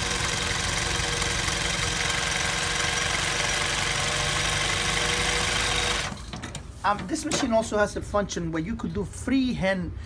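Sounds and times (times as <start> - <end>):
sewing machine running: 0.0 - 6.2.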